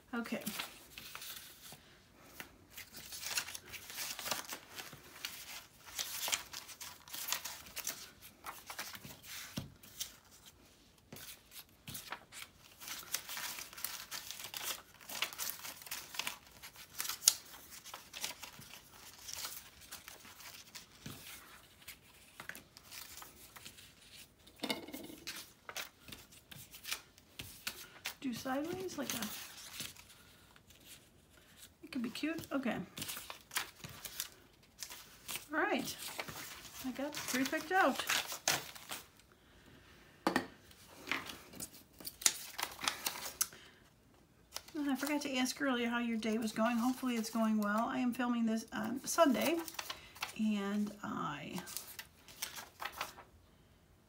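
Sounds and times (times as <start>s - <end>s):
paper pieces rustling: 0.4s - 10.5s, 11.1s - 39.1s, 49.2s - 50.3s, 51.7s - 53.2s.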